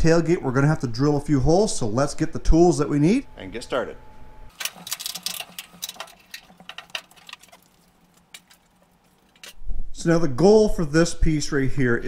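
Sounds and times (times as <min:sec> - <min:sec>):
metal tools clinking: 0:04.5 - 0:09.6.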